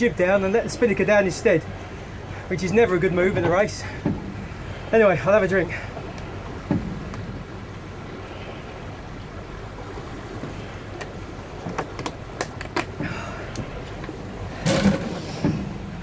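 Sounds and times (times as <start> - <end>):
water rushing past yacht: 0.0 - 16.0
wind: 0.0 - 16.0
sharp clicks and knocks: 11.0 - 13.0.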